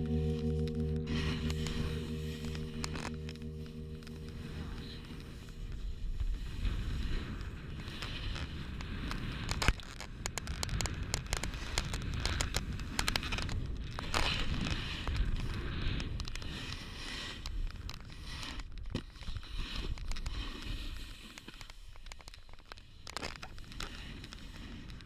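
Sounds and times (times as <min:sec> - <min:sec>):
small clicks and crackles: 0:00.1 - 0:25.0.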